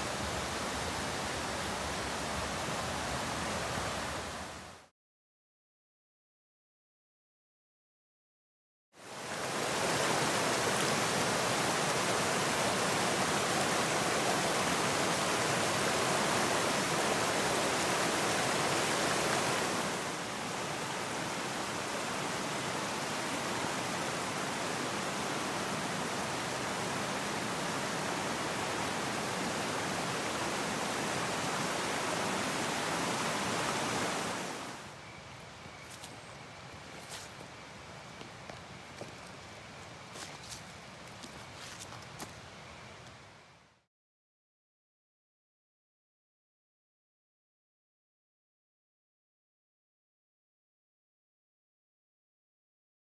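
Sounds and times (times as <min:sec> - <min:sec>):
creek rushing over rocks: 0:09.0 - 0:34.9.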